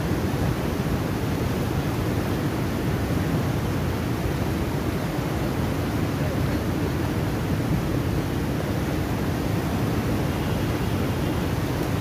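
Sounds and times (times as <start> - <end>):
water rushing through sluice gates: 0.0 - 12.0.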